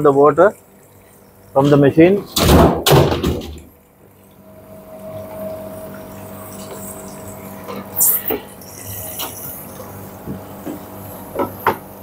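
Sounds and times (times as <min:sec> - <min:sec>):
dryer water pump humming: 0:00.0 - 0:12.0
water flowing: 0:03.8 - 0:11.0.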